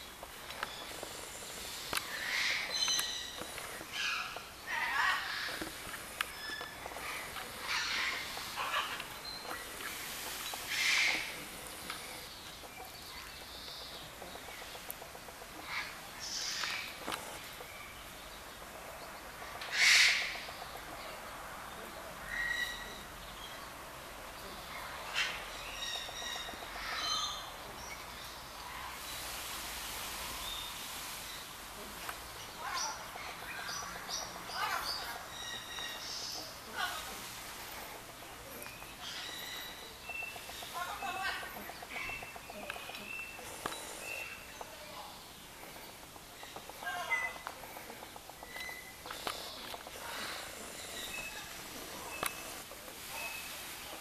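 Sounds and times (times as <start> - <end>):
outdoor background noise: 0.0 - 54.0
small birds chirping: 0.0 - 54.0
peacock harsh calls: 1.1 - 12.3, 19.5 - 20.6.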